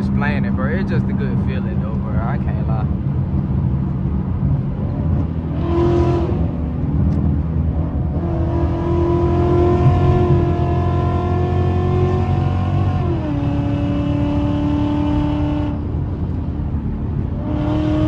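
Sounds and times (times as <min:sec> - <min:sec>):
car engine droning from cabin: 0:00.0 - 0:18.0.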